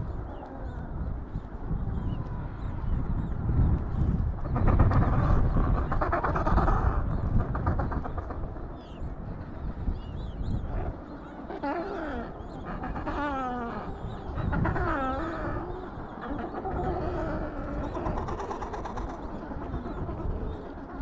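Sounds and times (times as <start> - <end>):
penguins calling: 11.5 - 21.0.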